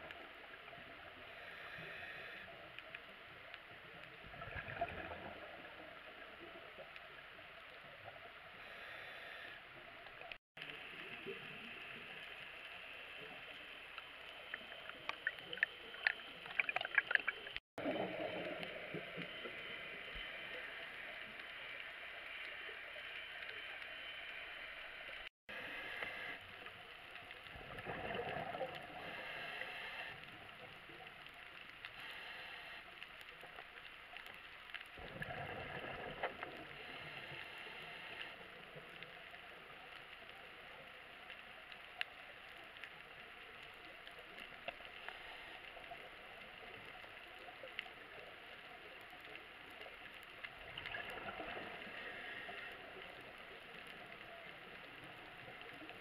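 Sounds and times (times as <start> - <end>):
steady hiss: 0.0 - 4.2, 5.7 - 16.7, 18.3 - 27.5, 28.8 - 35.0, 36.2 - 56.0
underwater bubbles gurgling: 0.0 - 8.6, 9.8 - 23.8, 25.6 - 32.2, 33.0 - 56.0
faint crackling: 0.0 - 56.0.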